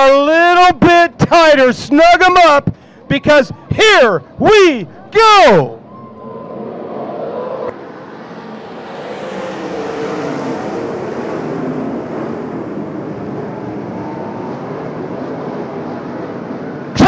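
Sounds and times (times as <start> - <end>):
race car engines revving high: 6.3 - 15.6.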